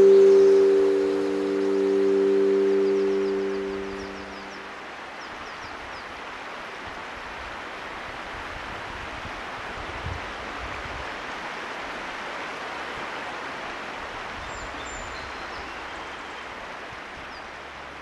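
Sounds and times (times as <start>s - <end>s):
faint high chirps: 0.0s - 4.8s
stream water flowing: 11.1s - 14.4s.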